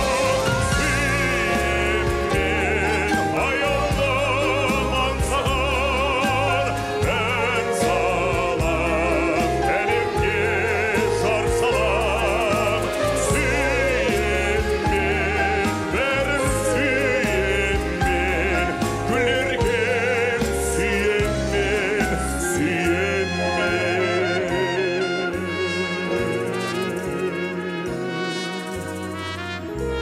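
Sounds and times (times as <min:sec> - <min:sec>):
man singing operatically: 0:00.0 - 0:30.0
orchestral music: 0:00.0 - 0:30.0.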